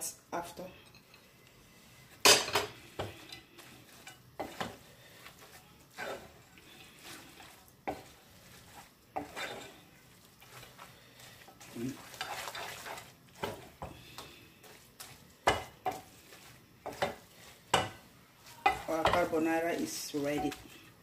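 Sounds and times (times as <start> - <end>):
spoon stirring spaghetti in sauce: 2.7 - 21.0
spoon knocking against pan: 16.9 - 18.0.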